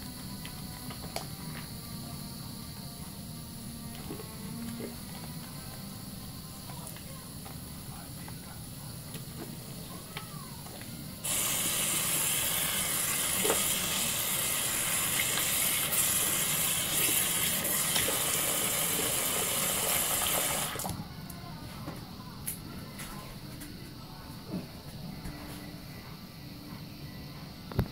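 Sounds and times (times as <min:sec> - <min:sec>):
faucet water running: 0:11.2 - 0:21.0.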